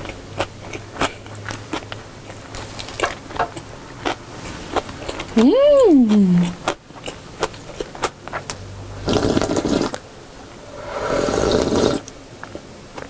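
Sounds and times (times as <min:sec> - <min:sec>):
person slurping broth: 0:09.1 - 0:10.0, 0:10.6 - 0:12.1.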